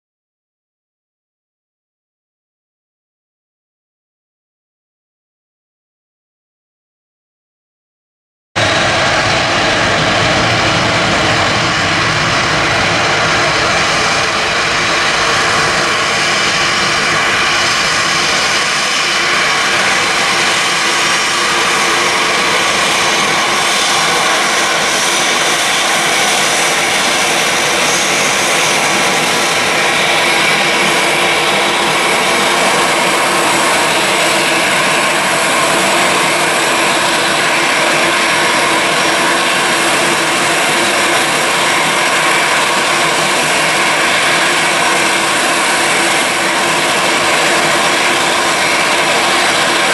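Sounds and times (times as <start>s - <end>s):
jet engines at takeoff thrust: 8.6s - 49.9s.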